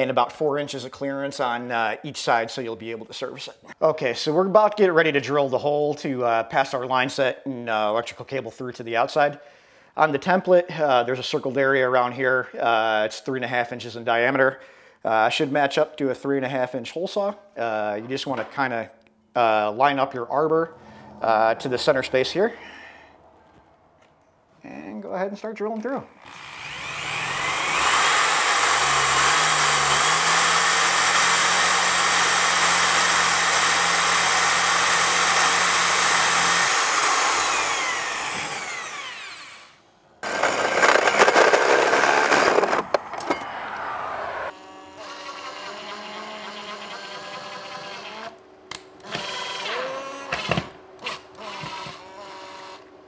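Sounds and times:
smaller drill running: 0:26.2 - 0:42.9, 0:44.5 - 0:48.4, 0:49.0 - 0:53.0
drill with hole saw cutting: 0:26.2 - 0:43.4, 0:44.5 - 0:48.4, 0:49.0 - 0:52.9.

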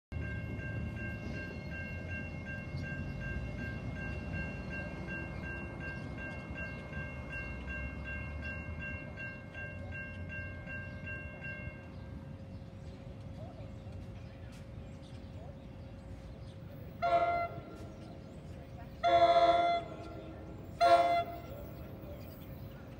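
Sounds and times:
electric train rumbling: 0:00.1 - 0:22.9
high-pitched train tone: 0:16.6 - 0:22.9.

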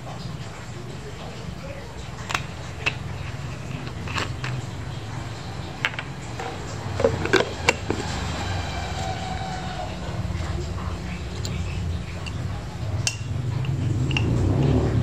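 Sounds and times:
steady low hum: 0:00.0 - 0:15.0
jars clicking on a countertop: 0:02.2 - 0:04.6, 0:05.8 - 0:08.1, 0:11.4 - 0:15.0.

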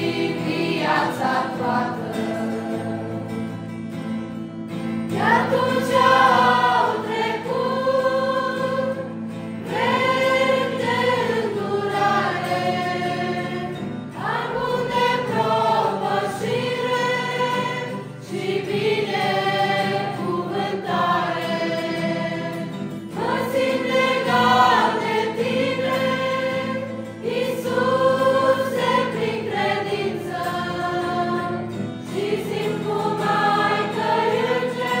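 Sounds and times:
choir singing: 0:00.0 - 0:03.7, 0:05.1 - 0:35.0
acoustic guitar: 0:00.0 - 0:35.0.

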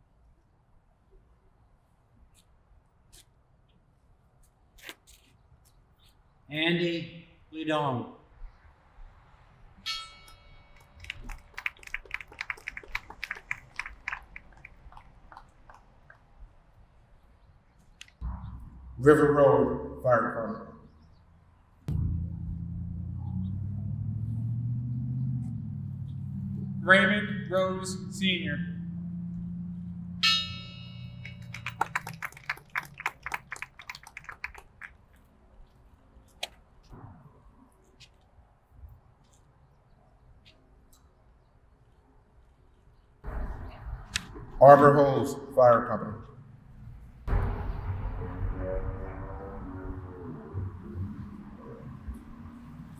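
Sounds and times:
faint bell ringing: 0:09.8 - 0:11.0, 0:30.2 - 0:31.8.

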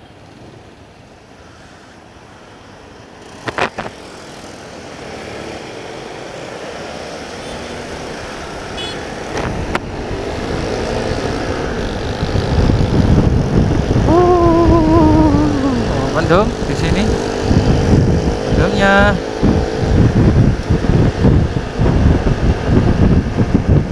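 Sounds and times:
wind on microphone: 0:09.4 - 0:23.9
motorcycle engine running: 0:09.8 - 0:23.9.

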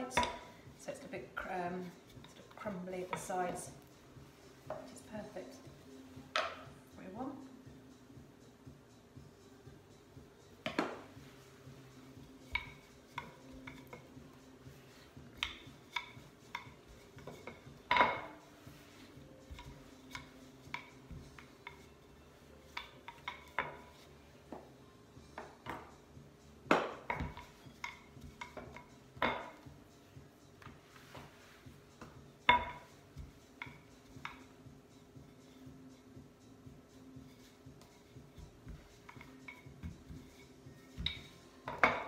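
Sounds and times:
rolling pin knocking on stone: 0:41.0 - 0:42.0.

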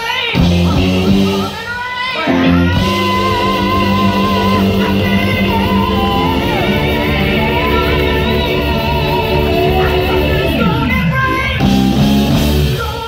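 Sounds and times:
live blues band playing: 0:00.0 - 0:13.0
person singing long notes: 0:02.1 - 0:12.0.

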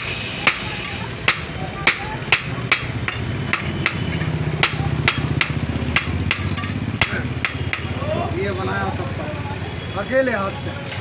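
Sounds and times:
hammer striking anvil: 0:00.0 - 0:08.0.

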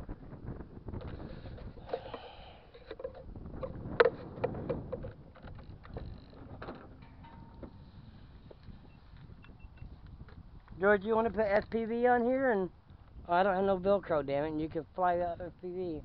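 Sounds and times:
camera handling rumble and knocks: 0:00.6 - 0:11.8.

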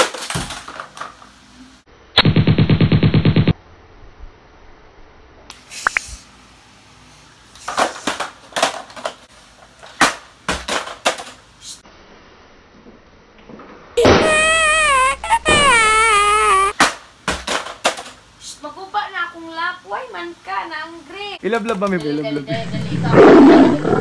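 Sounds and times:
rapid machine-gun-like fire: 0:02.2 - 0:03.6.

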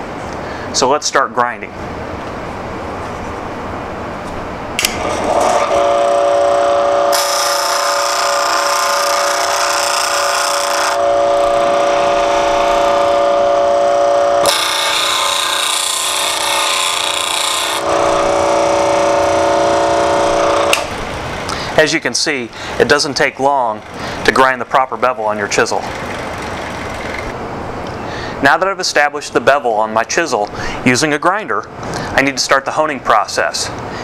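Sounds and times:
bench grinder whine: 0:04.8 - 0:27.4
chisel grinding on wheel: 0:05.3 - 0:21.8, 0:22.6 - 0:27.3.

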